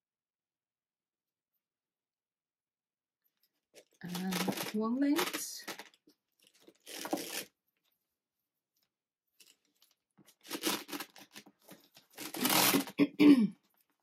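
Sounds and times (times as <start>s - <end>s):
chain bag straps rustling: 3.8s - 7.5s, 9.4s - 13.0s.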